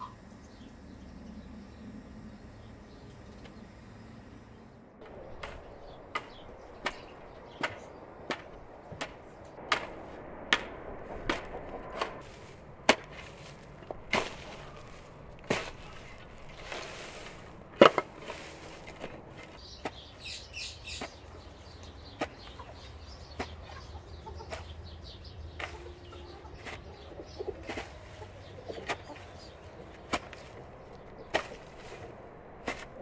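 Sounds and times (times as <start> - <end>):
spade chopping into soil: 5.4 - 20.0, 28.7 - 33.0
scraping rustle: 11.0 - 20.2.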